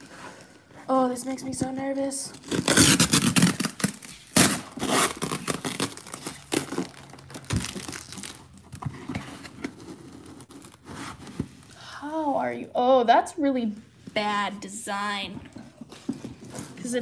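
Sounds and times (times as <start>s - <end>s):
packing material crinkling: 2.0s - 11.8s.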